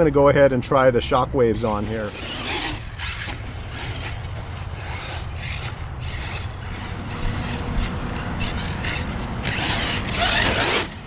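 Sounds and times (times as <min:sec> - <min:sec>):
footsteps on dirt track: 0:03.0 - 0:10.6.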